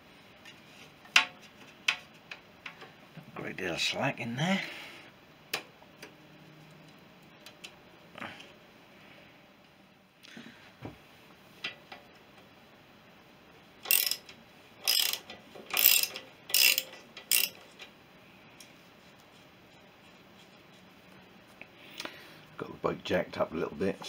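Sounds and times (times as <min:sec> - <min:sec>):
hand ratchet clicking: 0:13.8 - 0:17.6.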